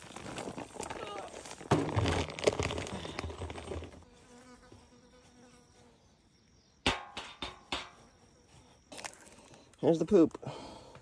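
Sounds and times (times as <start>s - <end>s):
fly buzzing: 4.0s - 6.1s.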